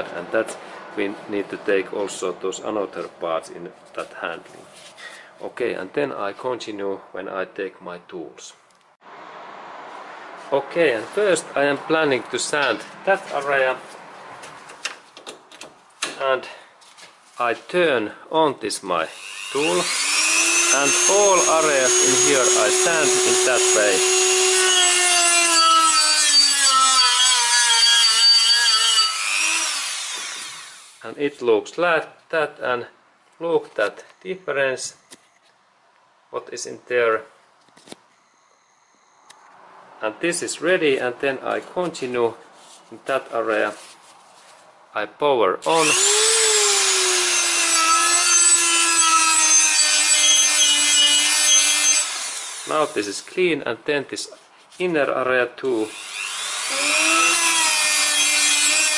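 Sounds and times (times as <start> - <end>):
rotary tool whining on metal: 19.1 - 31.0, 45.8 - 53.0, 55.9 - 58.9.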